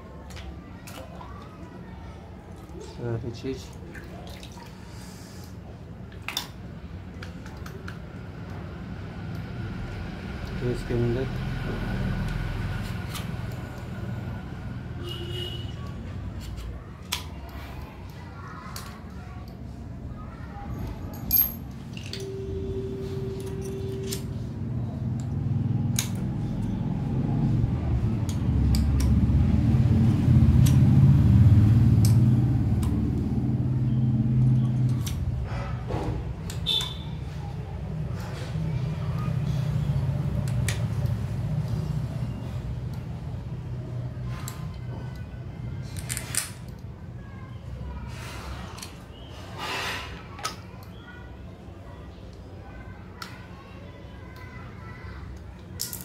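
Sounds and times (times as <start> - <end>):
small metal and plastic parts clinking: 20.8 - 22.3, 45.8 - 46.9, 55.4 - 56.0
plastic parts clacking: 55.4 - 56.0.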